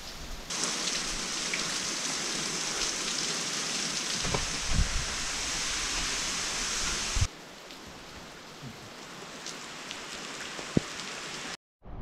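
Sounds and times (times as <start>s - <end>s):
waterfall spray hissing: 0.5s - 7.3s.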